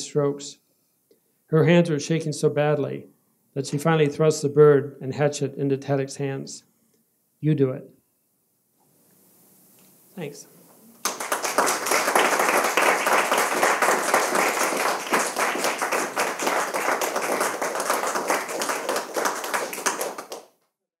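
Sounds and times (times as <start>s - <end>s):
audience applauding: 11.0s - 20.5s.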